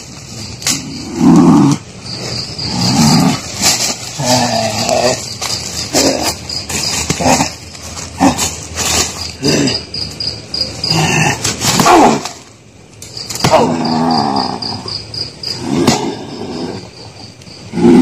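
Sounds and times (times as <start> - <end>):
crickets trilling: 0.0 - 18.0
person growling and crying out: 13.5 - 14.9.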